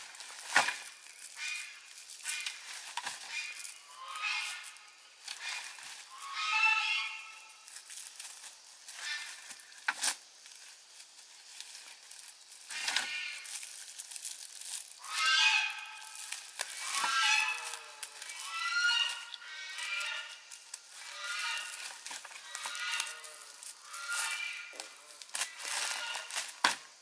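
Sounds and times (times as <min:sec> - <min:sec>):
scattered crackles: 0:00.0 - 0:27.0
small animal high-pitched cries: 0:15.0 - 0:21.8.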